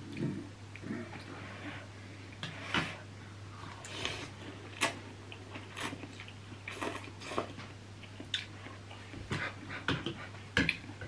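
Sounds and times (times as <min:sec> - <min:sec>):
people slurping and chewing noodles: 0:02.5 - 0:11.0.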